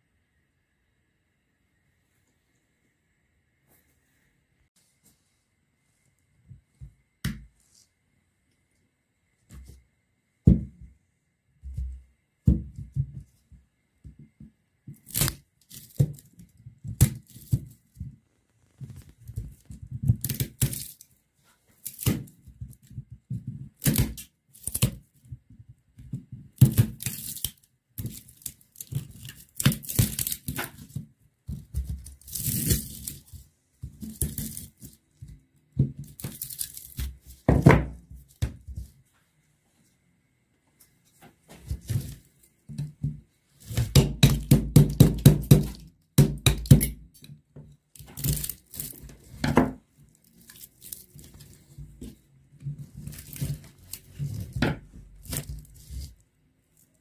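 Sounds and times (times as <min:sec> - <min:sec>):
copper wire scraping and tearing: 0:32.1 - 0:33.4, 0:36.0 - 0:37.1, 0:48.0 - 0:49.2, 0:50.2 - 0:51.7, 0:53.0 - 0:54.6.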